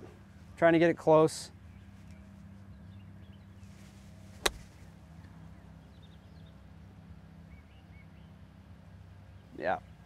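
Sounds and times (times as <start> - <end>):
golf club striking ball: 4.4 - 4.8.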